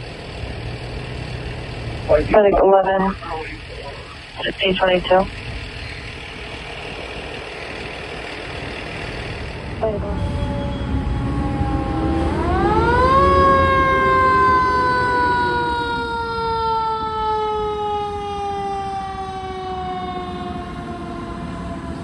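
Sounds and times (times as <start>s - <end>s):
truck engine rumble: 0.0s - 22.0s.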